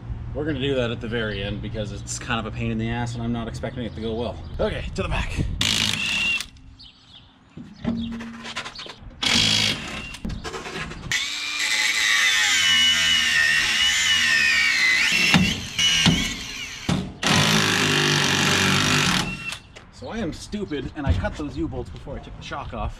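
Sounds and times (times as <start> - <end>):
angle grinder cutting metal: 11.1 - 19.6.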